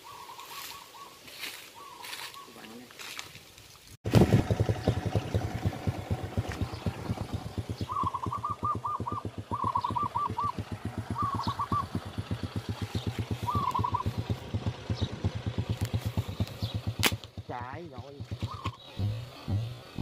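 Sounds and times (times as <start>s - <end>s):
bird calling: 0.0s - 3.0s, 5.8s - 20.0s
small motorcycle engine idling: 4.1s - 20.0s.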